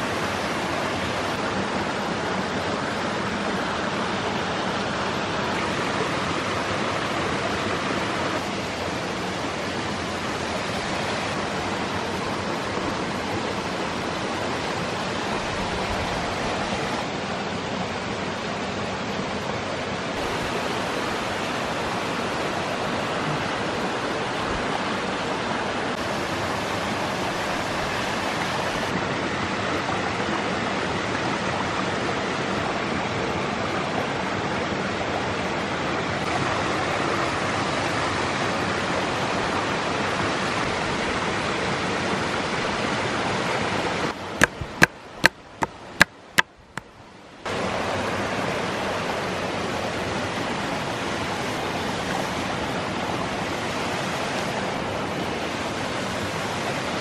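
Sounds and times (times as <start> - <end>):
mountain stream rushing: 0.0 - 57.0
knife chopping on wooden board: 44.4 - 46.5.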